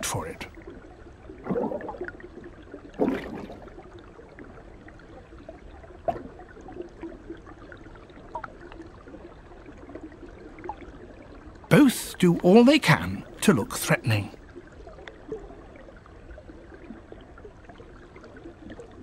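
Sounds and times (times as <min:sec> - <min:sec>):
stream water: 0:00.0 - 0:19.0.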